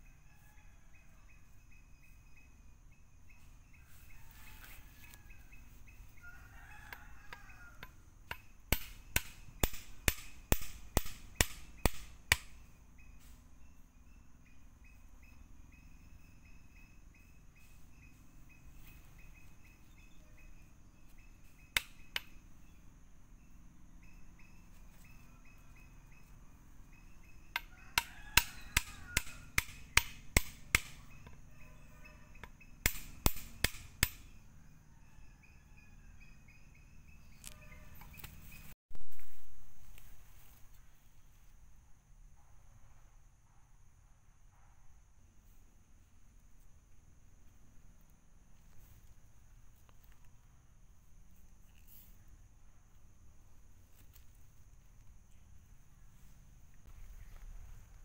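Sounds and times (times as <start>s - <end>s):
insects droning: 0.0s - 58.0s
rooster crowing: 0.1s - 1.4s, 3.8s - 5.6s, 6.2s - 8.0s, 27.5s - 29.6s, 34.4s - 36.5s, 37.4s - 38.3s
wooden stake being knocked: 7.8s - 12.6s, 27.5s - 31.0s, 32.8s - 34.2s.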